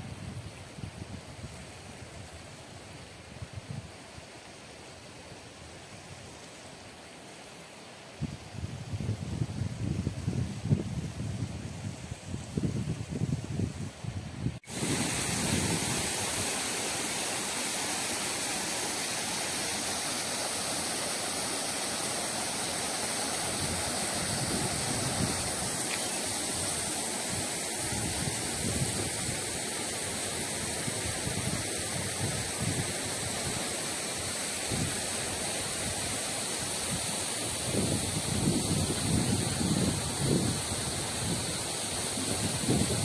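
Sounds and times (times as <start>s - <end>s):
wind gusts on microphone: 8.2s - 16.6s, 23.5s - 29.6s, 36.9s - 43.0s
waterfall rushing: 14.6s - 43.0s.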